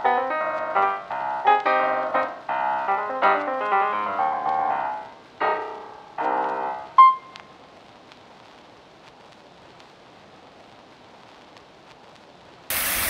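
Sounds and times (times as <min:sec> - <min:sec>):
piano music: 0:00.0 - 0:07.4
fountain water hiss: 0:12.7 - 0:13.0.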